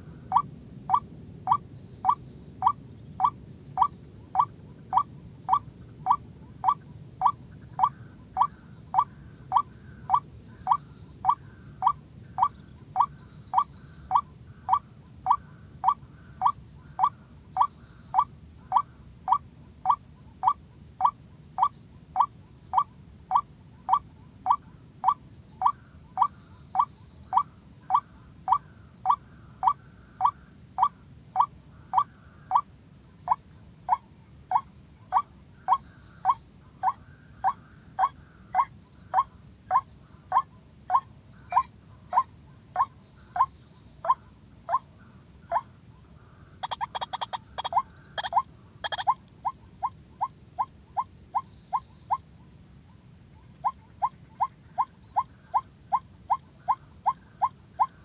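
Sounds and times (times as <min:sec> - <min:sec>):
waterhen call: 0:46.6 - 0:49.6.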